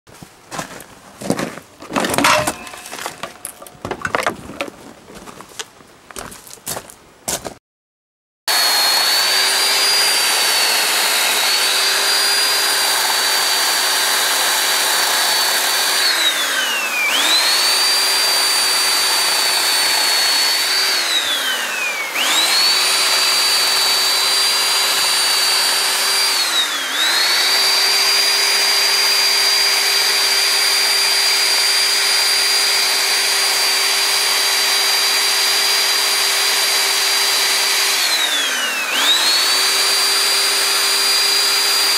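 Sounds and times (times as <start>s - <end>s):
chainsaw carving wood: 8.5s - 41.9s.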